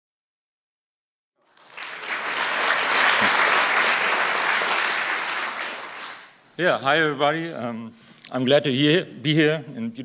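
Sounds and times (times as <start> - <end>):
audience applauding: 1.4 - 6.4.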